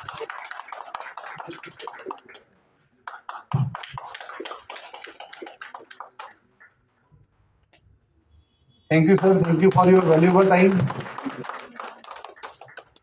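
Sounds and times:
people clapping: 0:00.0 - 0:06.8, 0:09.0 - 0:13.0.

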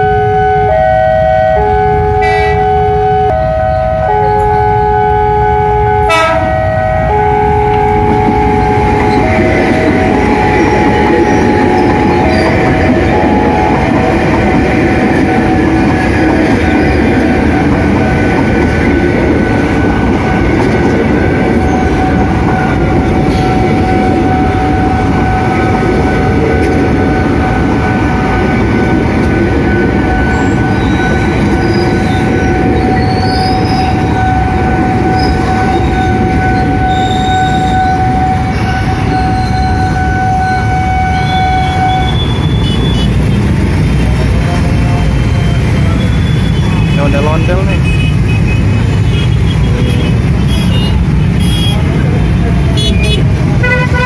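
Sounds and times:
electric train passing: 0:00.0 - 0:54.0
wheels squealing on rails: 0:08.2 - 0:53.4.

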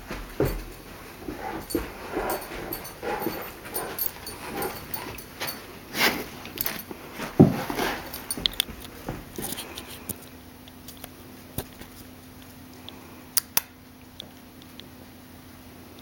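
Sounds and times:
dog whining: 0:01.2 - 0:05.6.

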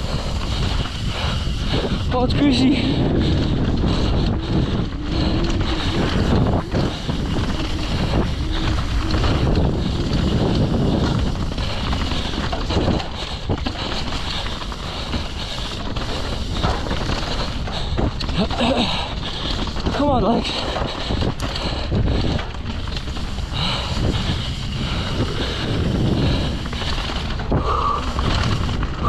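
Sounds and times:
bike tyre and chassis noise: 0:00.0 - 0:29.0
wind rushing over microphone: 0:00.0 - 0:29.0.

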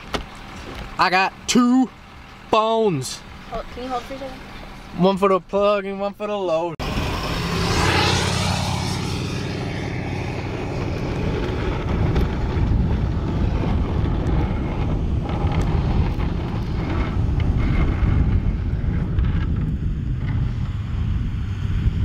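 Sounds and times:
truck engine idling: 0:00.0 - 0:06.7
wind buffeting microphone: 0:06.8 - 0:22.0.

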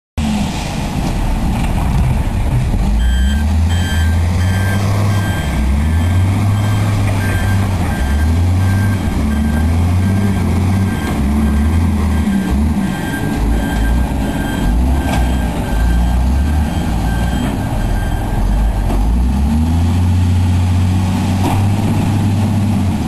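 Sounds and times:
heavy engine running: 0:00.2 - 0:23.0
short high beeps: 0:03.0 - 0:18.7.

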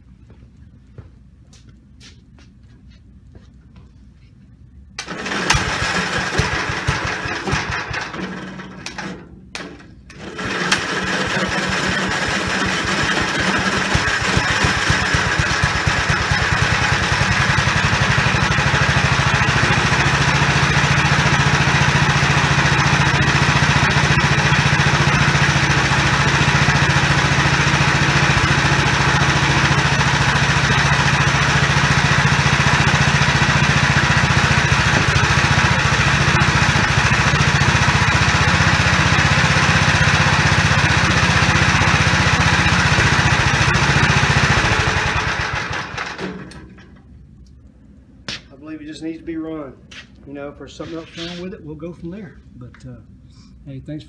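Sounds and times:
small engine running steadily: 0:05.0 - 0:46.8.

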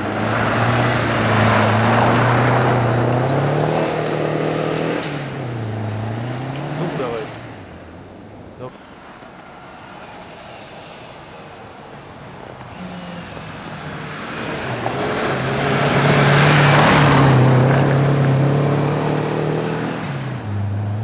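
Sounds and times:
tyres sliding on snow: 0:00.0 - 0:07.4
rally car engine passing by: 0:00.0 - 0:08.0, 0:09.7 - 0:21.0.

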